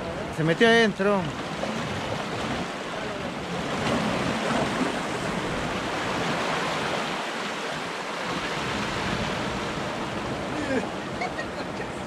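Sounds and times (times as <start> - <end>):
ocean waves breaking: 0.0 - 12.0.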